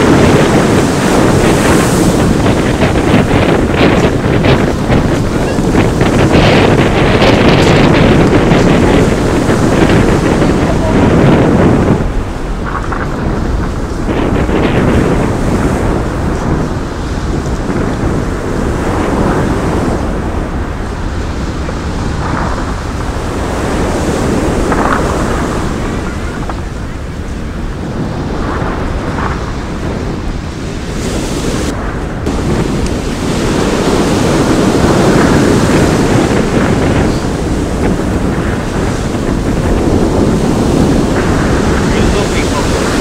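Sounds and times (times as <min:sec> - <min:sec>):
wind buffeting microphone: 0:00.0 - 0:43.0
sea waves breaking on pebbles: 0:21.7 - 0:26.7, 0:28.2 - 0:43.0.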